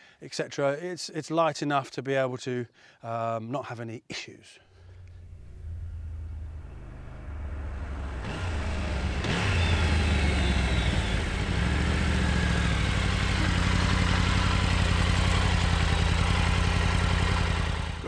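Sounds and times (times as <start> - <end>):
motorcycle engine: 4.9 - 18.0.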